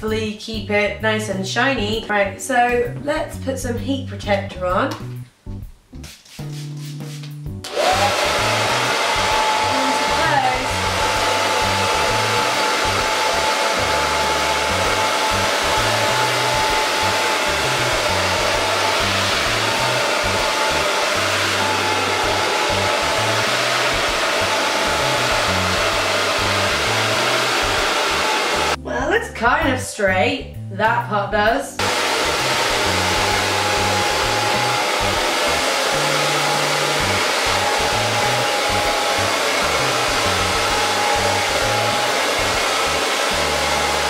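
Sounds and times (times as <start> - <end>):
hair dryer blowing: 7.6 - 28.8, 31.8 - 44.0.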